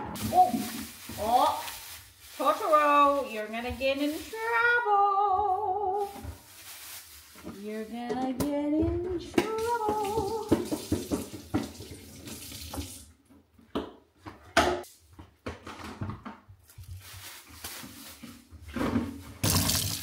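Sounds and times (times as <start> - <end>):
knocks of handling vegetables: 0.0 - 4.5, 6.0 - 12.0, 12.7 - 20.0
tap water running into sink: 9.6 - 13.1, 19.4 - 20.0.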